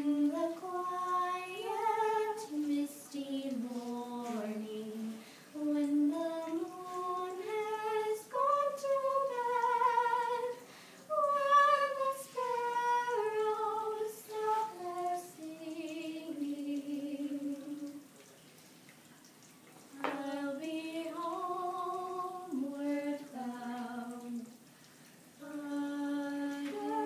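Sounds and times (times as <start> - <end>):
two people singing in unison: 0.0 - 18.0, 25.4 - 27.0.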